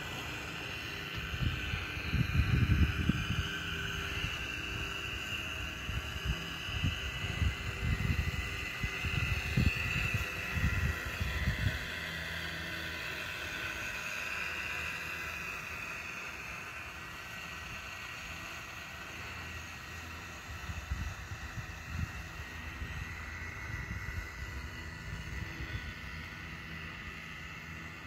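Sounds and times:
electric propeller motor whine: 0:00.0 - 0:28.0
wind buffeting microphone: 0:01.1 - 0:04.9, 0:05.8 - 0:12.0, 0:20.5 - 0:26.2.

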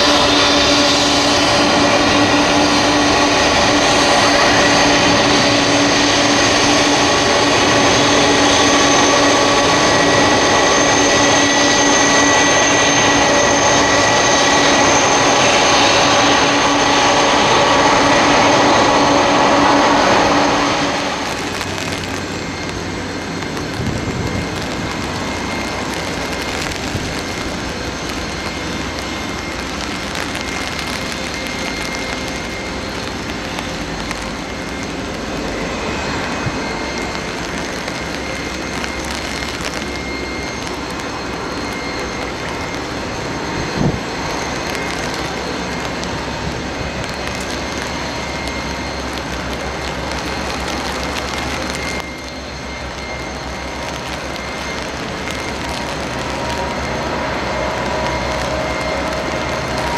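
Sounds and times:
jet engine whine: 0:00.0 - 0:59.9.

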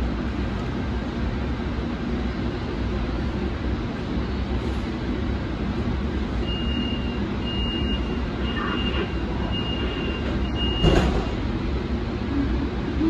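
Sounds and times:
electronic warning beeps: 0:06.4 - 0:11.1.

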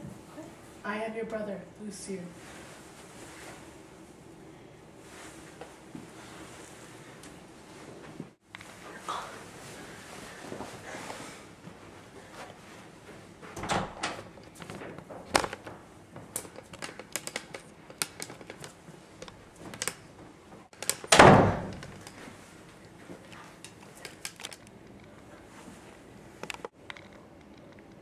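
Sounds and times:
clicks and knocks indoors: 0:13.4 - 0:25.3.

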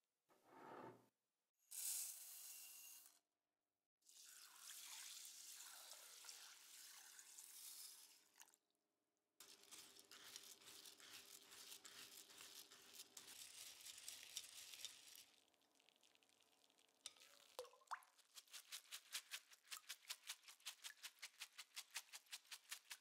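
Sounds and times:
water pouring over grains in a sieve: 0:04.1 - 0:08.6, 0:09.4 - 0:23.0
wooden spoon stirring wet grains: 0:09.4 - 0:23.0.

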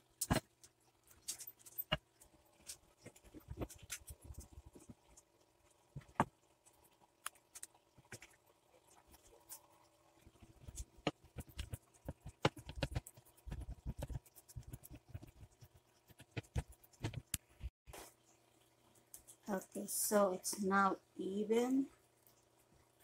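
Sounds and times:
spatula taps and clicks: 0:10.4 - 0:17.7.

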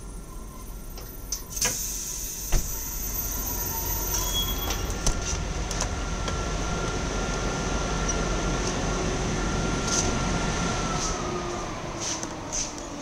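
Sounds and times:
train hiss: 0:01.5 - 0:04.3, 0:10.9 - 0:13.0.

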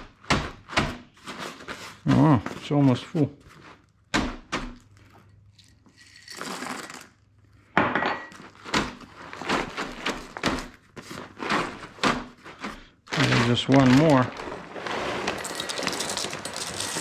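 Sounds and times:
dried food pouring into a bag: 0:06.1 - 0:07.2, 0:13.1 - 0:17.0.

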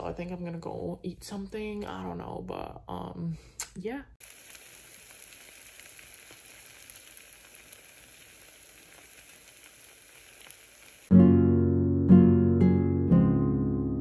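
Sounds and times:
faint sizzling with crackles: 0:03.6 - 0:11.2
plucked-string music: 0:11.1 - 0:14.0.

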